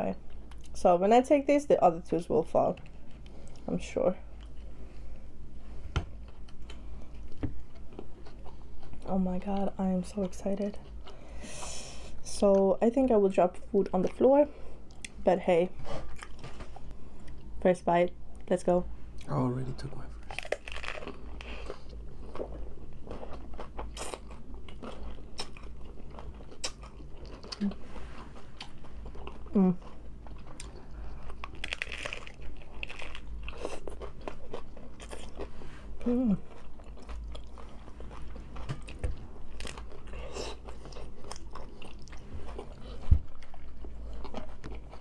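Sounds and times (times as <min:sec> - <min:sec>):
taco shells crunching when bitten: 0:20.2 - 0:27.6, 0:28.4 - 0:35.5.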